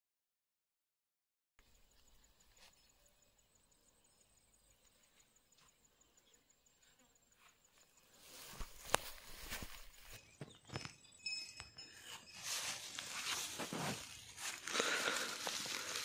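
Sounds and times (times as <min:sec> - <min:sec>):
high-pitched insect trill: 0:02.2 - 0:14.7
rustling: 0:08.2 - 0:10.2, 0:12.2 - 0:16.0.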